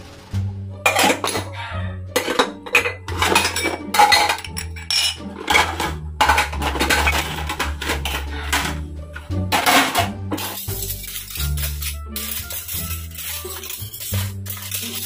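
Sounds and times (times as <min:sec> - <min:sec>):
plates and bowls clattering: 0:00.8 - 0:08.8, 0:09.5 - 0:15.0
cutlery clinking into holder: 0:02.2 - 0:08.7, 0:09.6 - 0:15.0.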